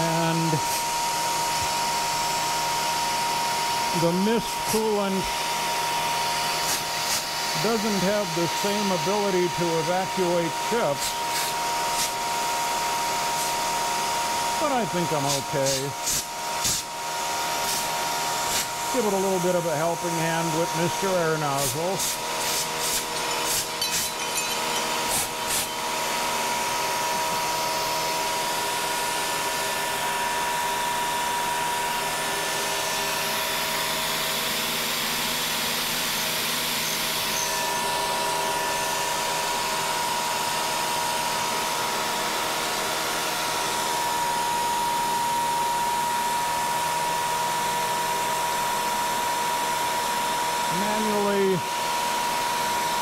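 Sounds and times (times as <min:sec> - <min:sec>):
milling cutter whine: 0:00.0 - 0:53.0
air nozzle blasts: 0:06.4 - 0:07.8, 0:10.9 - 0:12.3, 0:13.2 - 0:13.8, 0:14.6 - 0:19.2, 0:20.2 - 0:27.9
coolant mist hiss: 0:14.6 - 0:19.4, 0:20.1 - 0:23.8.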